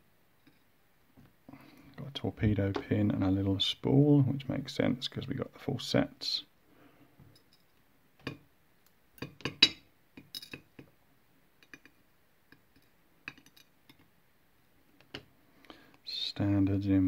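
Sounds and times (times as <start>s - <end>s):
light metallic clicks and clinks: 7.3s - 7.8s, 9.2s - 10.8s, 12.7s - 14.0s.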